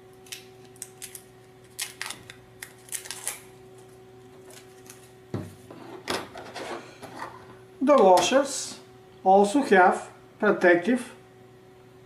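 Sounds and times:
faint steady hum: 0:00.0 - 0:12.0
protective film peeling crackles: 0:00.2 - 0:05.2.

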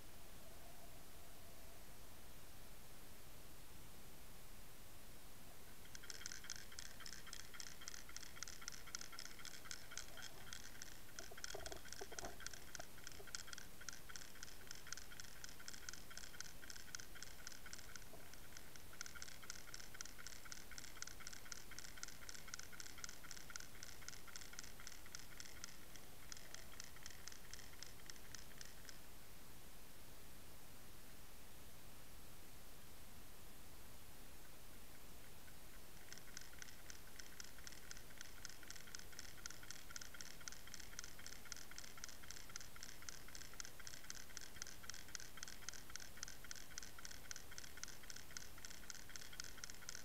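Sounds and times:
rapid underwater ticking: 0:05.8 - 0:29.0, 0:35.7 - 0:50.0.

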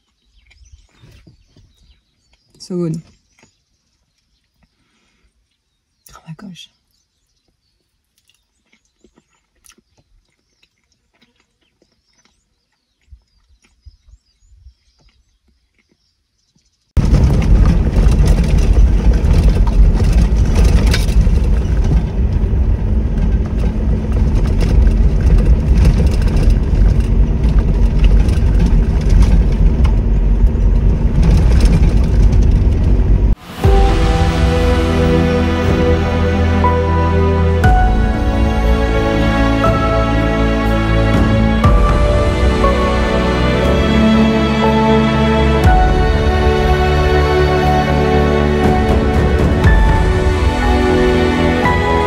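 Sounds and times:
bumps and rattles: 0:17.0 - 0:52.0
vehicle rumbling on dirt track: 0:17.0 - 0:52.0.

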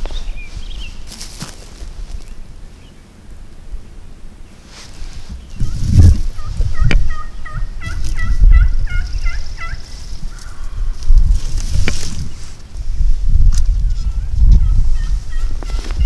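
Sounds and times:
low rumbling thumps: 0:05.3 - 0:09.2
turkey yelps: 0:06.4 - 0:09.8, 0:14.6 - 0:16.0.

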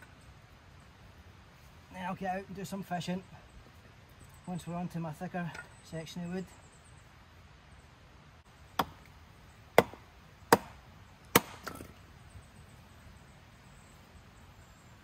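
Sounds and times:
axe chopping wood: 0:08.8 - 0:09.1, 0:09.8 - 0:12.0.

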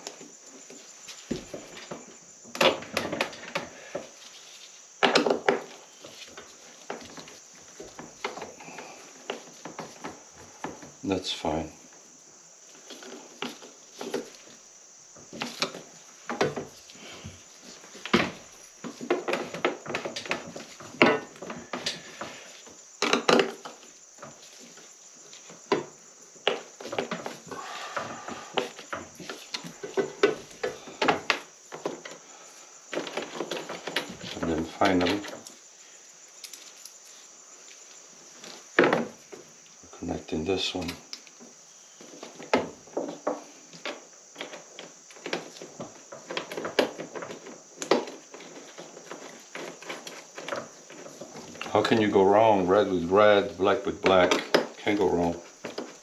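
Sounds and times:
battery cables clicking and knocking: 0:42.2 - 0:51.8.

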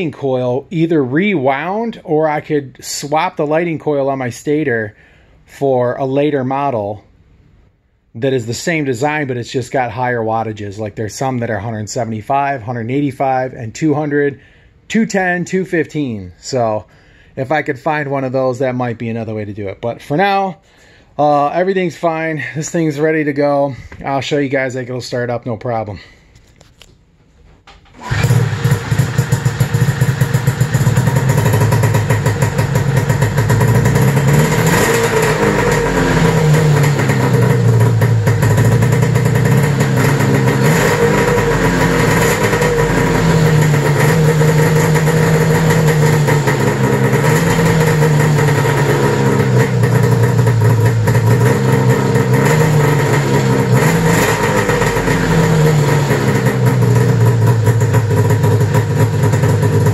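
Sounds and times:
snowmobile engine starting and revving: 0:28.0 - 0:59.9.

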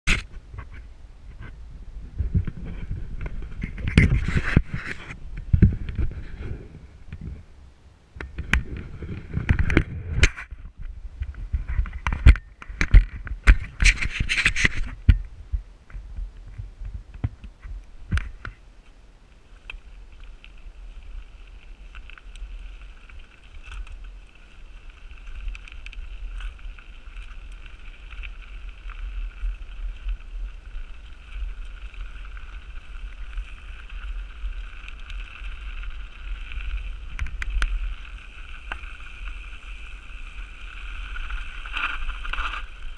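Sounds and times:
wind rumble on microphone: 0:00.0 - 0:42.9.

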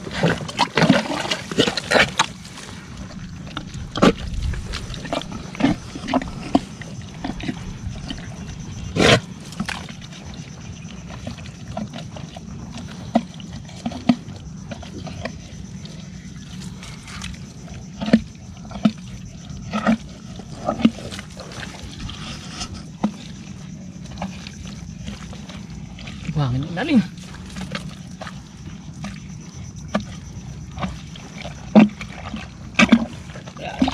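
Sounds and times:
splashes in swamp water: 0:00.0 - 0:11.6, 0:19.7 - 0:33.9.

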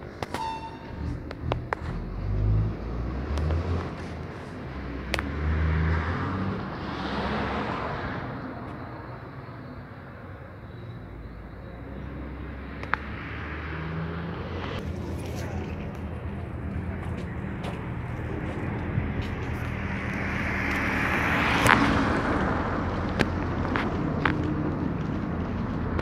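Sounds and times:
distant jet aircraft flying over: 0:11.7 - 0:26.0.

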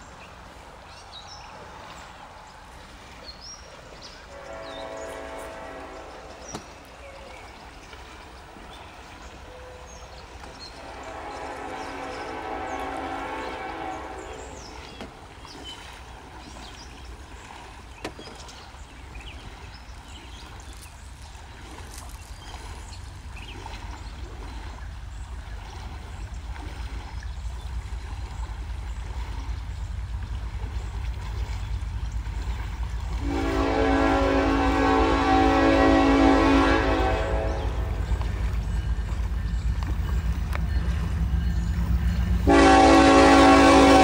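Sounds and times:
train horn: 0:04.3 - 0:07.3, 0:10.7 - 0:15.1, 0:33.1 - 0:44.0
diesel locomotive rumble: 0:19.7 - 0:44.0.

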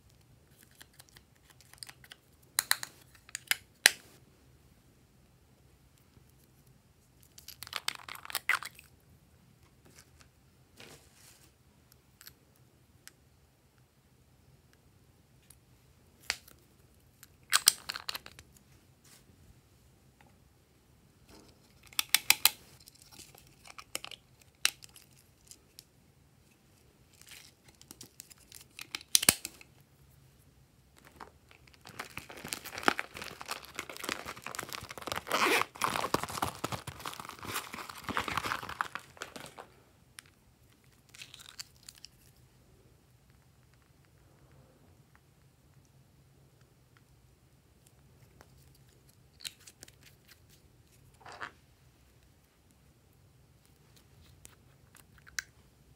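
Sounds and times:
plastic packaging crinkling: 0:31.0 - 0:39.8.

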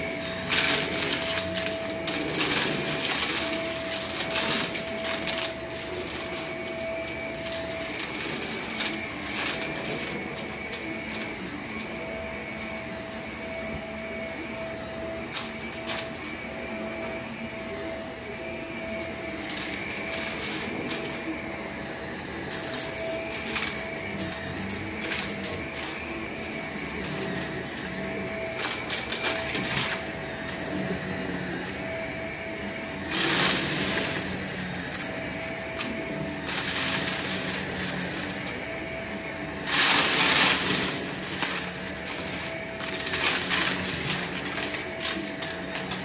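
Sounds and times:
debris rattling through vacuum: 0:00.0 - 0:14.3, 0:19.0 - 0:46.0
upright vacuum cleaner running: 0:00.0 - 0:46.0.

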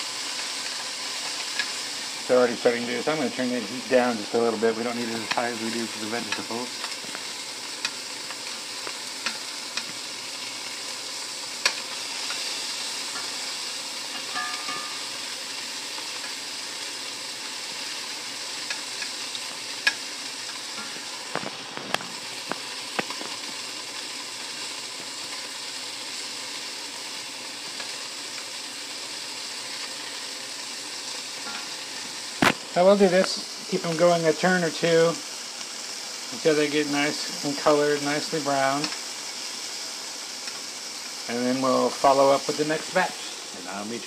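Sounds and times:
chicken sizzling in oil: 0:00.0 - 0:44.0
metal tongs clicking on pan: 0:06.3 - 0:07.0, 0:09.2 - 0:10.0, 0:11.6 - 0:12.5.

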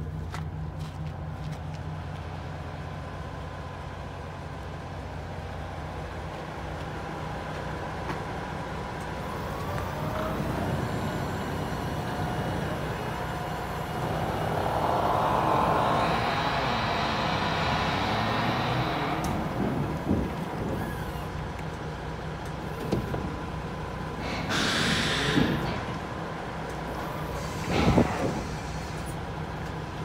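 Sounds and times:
truck diesel engine idling: 0:00.0 - 0:30.0
rushing noise: 0:09.2 - 0:21.2, 0:24.1 - 0:26.2, 0:26.9 - 0:29.3.

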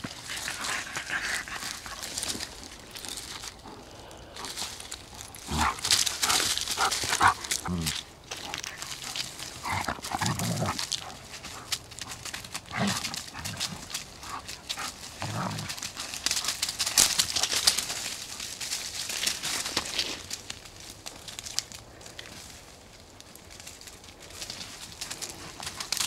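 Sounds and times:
dogs growling: 0:00.0 - 0:17.9
rustling of dry leaves: 0:00.0 - 0:26.0.

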